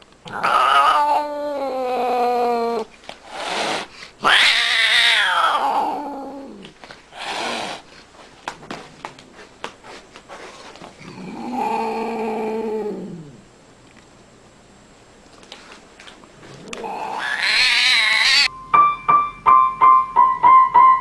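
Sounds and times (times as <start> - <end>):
cat meowing: 0.3 - 2.8, 4.2 - 6.6, 16.7 - 18.5.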